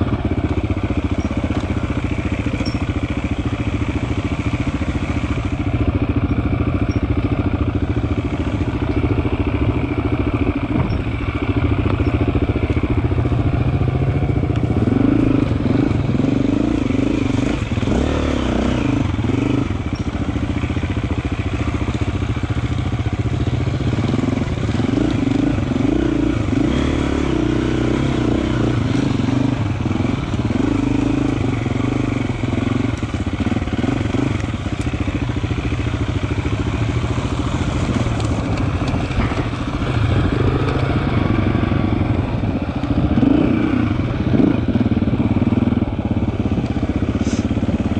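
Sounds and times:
motorcycle engine revving: 0.0 - 47.9.

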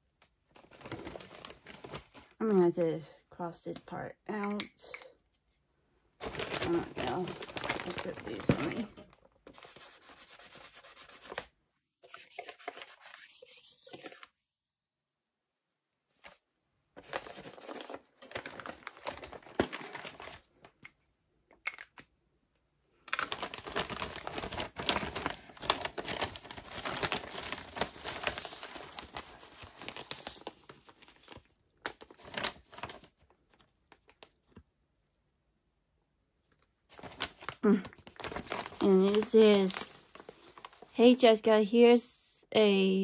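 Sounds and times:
plastic mailer crinkling: 0.5 - 2.4, 6.2 - 9.8, 17.0 - 20.8, 23.0 - 34.6, 36.9 - 41.2.

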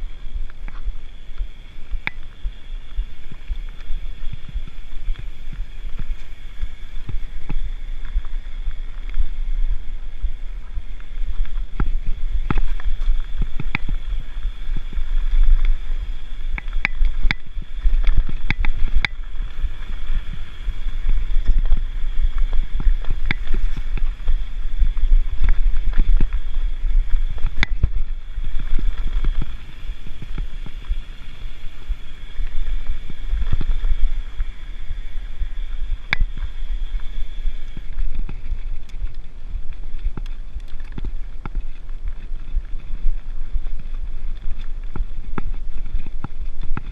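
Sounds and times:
wind rumble on microphone: 0.0 - 46.9.

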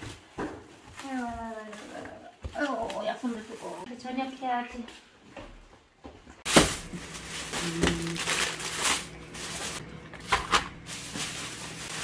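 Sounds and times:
plastic bags crinkling: 6.5 - 12.0.

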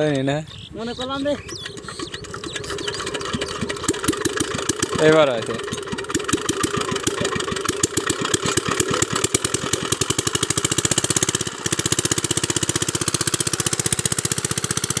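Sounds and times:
diesel engine chugging: 0.1 - 15.0
water gushing from pump: 1.4 - 15.0.

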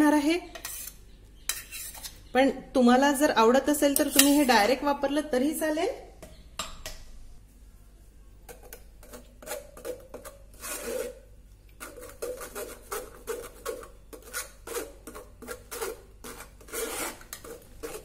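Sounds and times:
spoon scraping metal strainer: 0.4 - 2.2, 4.0 - 4.8, 8.7 - 18.0.

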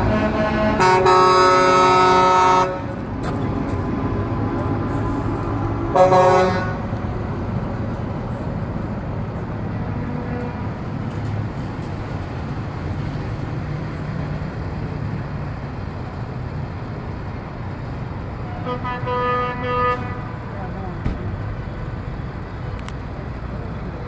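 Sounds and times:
vehicle horn blast: 0.0 - 3.0, 5.9 - 6.9, 18.5 - 20.4
trucks and traffic rumbling: 0.0 - 24.0.

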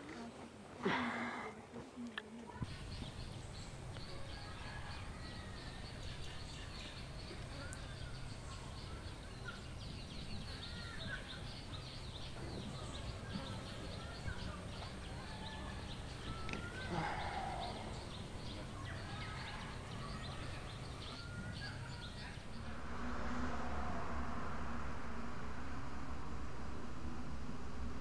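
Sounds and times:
small birds chirping: 2.5 - 24.6
steady low hum: 2.6 - 28.0.

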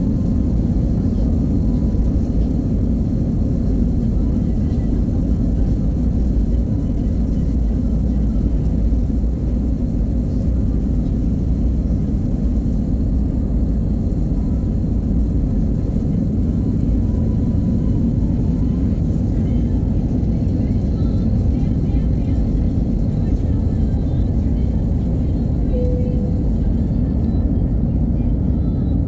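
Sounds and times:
jet engines roaring: 0.0 - 29.0
wheels rumbling on runway: 0.0 - 29.0.

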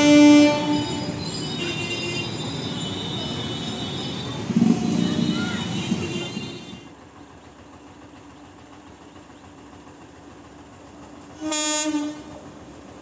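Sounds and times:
train horn blast: 0.0 - 6.9, 11.4 - 12.4
passing train noise: 0.0 - 13.0.

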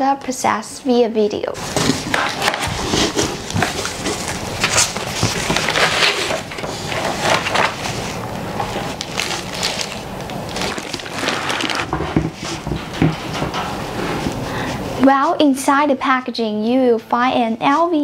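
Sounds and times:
cardboard and paper rustling: 1.6 - 14.3.

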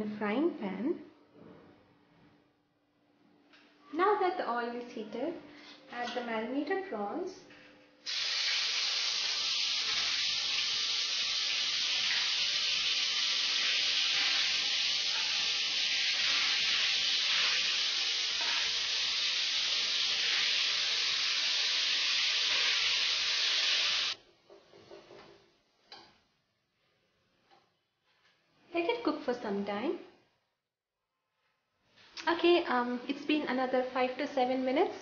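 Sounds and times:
prawns sizzling in hot oil: 8.0 - 24.2.

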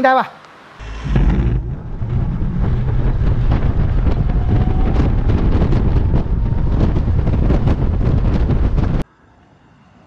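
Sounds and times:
faint rising whine: 0.8 - 9.8
wind buffeting microphone: 0.9 - 9.0.

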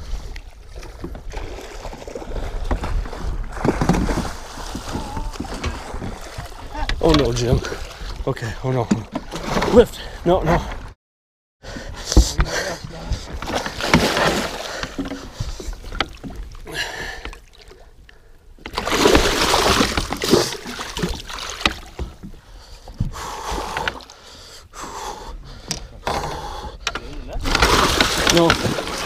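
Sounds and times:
fish splashing in water: 18.7 - 21.9, 27.4 - 29.0.

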